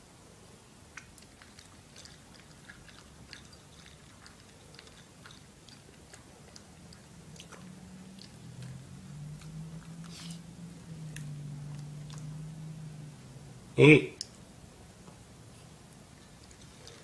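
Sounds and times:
low steady hum: 0.0 - 17.0
dog crunching dry kibble: 1.0 - 8.8.

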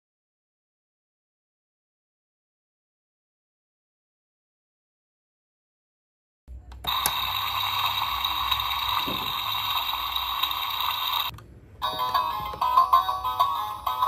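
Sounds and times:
toy buzzing ringing sound effect: 6.9 - 11.3.

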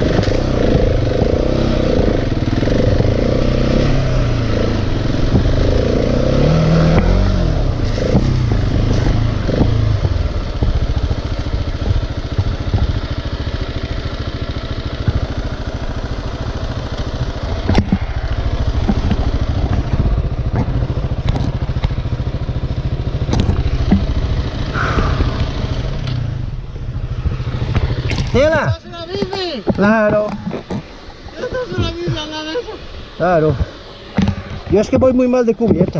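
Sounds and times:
motorcycle engine at low revs: 0.0 - 35.9
sharp knocks: 24.8 - 25.7.

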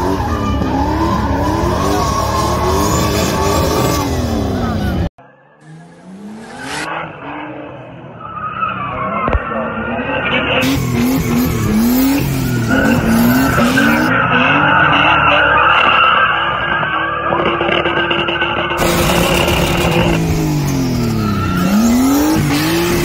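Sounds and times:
tyres squealing on tarmac: 0.0 - 5.1
car engine revving: 0.0 - 23.0.

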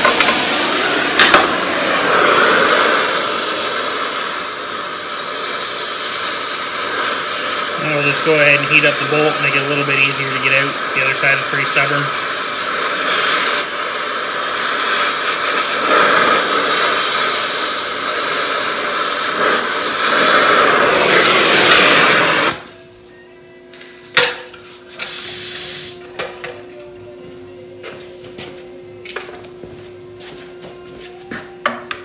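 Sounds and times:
cutting torch flame hissing: 0.0 - 22.7, 24.8 - 26.0
torch click: 10.8 - 22.7, 24.9 - 26.0
brief sharp hiss: 24.7 - 26.0.

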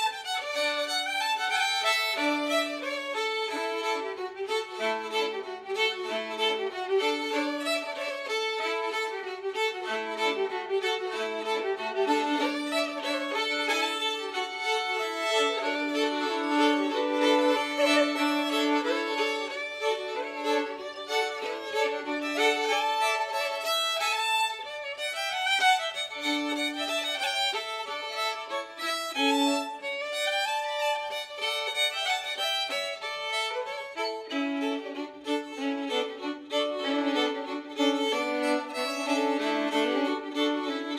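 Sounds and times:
folk fiddle tune: 0.0 - 40.9.

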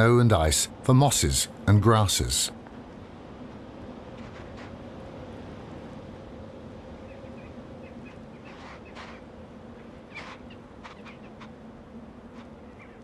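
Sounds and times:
steady low hum: 0.0 - 8.4.

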